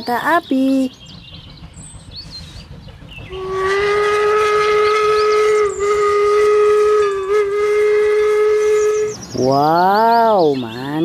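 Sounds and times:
steam locomotive whistle blast: 3.3 - 9.5.

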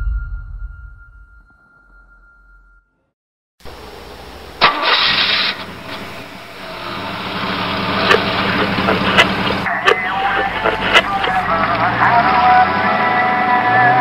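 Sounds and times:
engine idling: 3.7 - 13.6
engine starting burst: 4.6 - 9.7.

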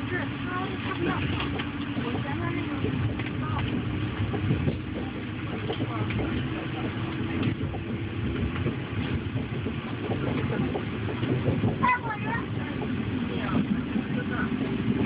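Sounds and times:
train rolling along track: 0.0 - 15.0.

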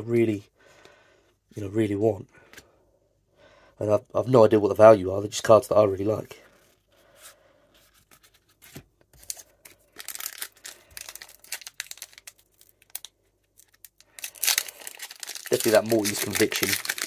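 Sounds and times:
foil pack crinkling and tearing: 9.2 - 17.0.

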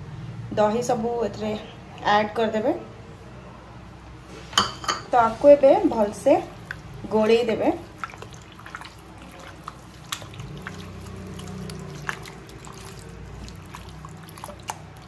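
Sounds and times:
wet squelching of kneading: 5.4 - 15.0.

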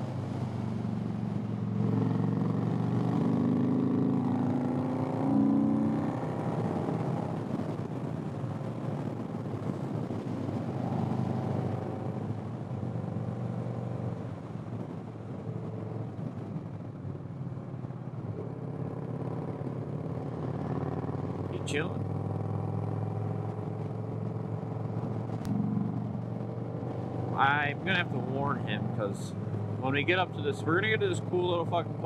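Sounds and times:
wind rush on microphone: 5.8 - 32.0
motorcycle engine running: 15.0 - 32.0.

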